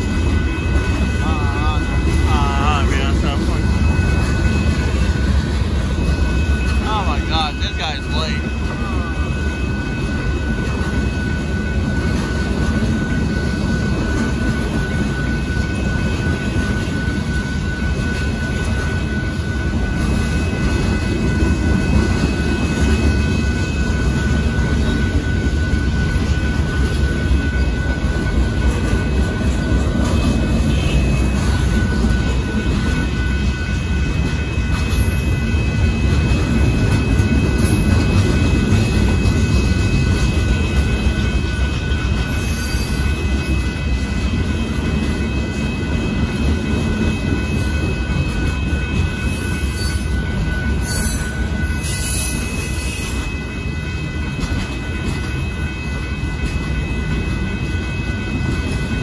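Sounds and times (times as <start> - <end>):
thin high tones: 0.0 - 10.3
train wheels rumbling on rail: 0.0 - 59.0.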